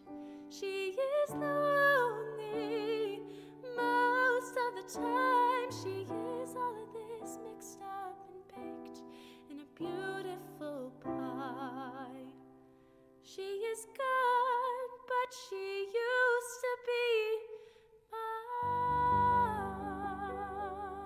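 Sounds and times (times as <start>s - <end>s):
woman singing with vibrato: 0.5s - 8.9s, 9.5s - 12.3s, 18.2s - 21.0s.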